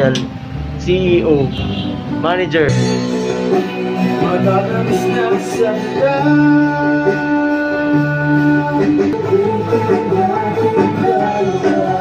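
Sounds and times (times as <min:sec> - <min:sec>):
song with singing: 0:02.9 - 0:12.0.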